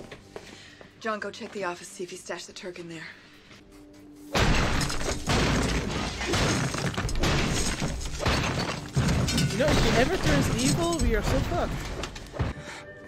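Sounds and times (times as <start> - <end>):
glass shattering: 4.4 - 12.1.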